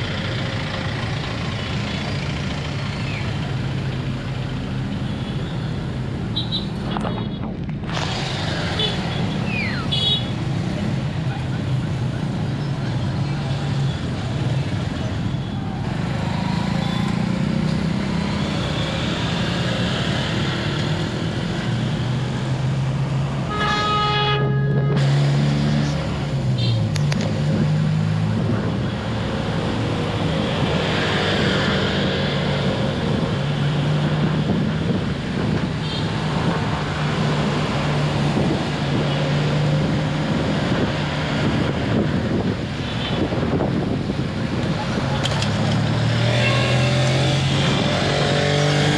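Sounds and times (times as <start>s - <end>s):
city traffic: 0.0s - 48.9s
car horn: 23.4s - 25.2s, 46.3s - 47.0s.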